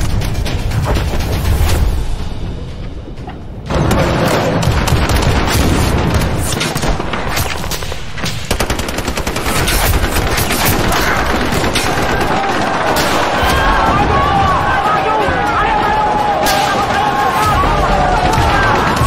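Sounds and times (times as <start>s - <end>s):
machine-gun bursts and shots: 3.8s - 13.4s.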